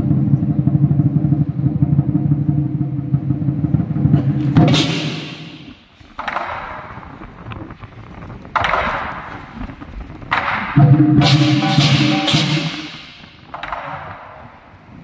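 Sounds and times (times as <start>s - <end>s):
fast drum roll: 0.0s - 14.7s
cymbal crashes: 4.2s - 5.9s, 10.8s - 13.5s.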